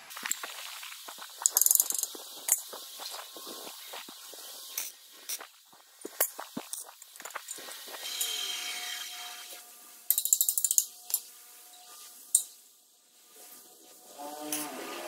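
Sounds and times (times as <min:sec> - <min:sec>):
welder crackling burst: 0:00.0 - 0:09.6
steel tubing clicking and knocking: 0:01.4 - 0:02.9.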